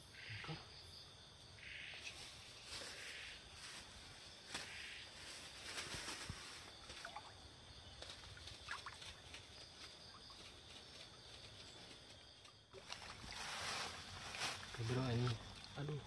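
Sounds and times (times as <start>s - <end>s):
insect drone: 0.0s - 16.0s
water sloshing: 12.7s - 16.0s
sticks rustling: 12.8s - 14.8s.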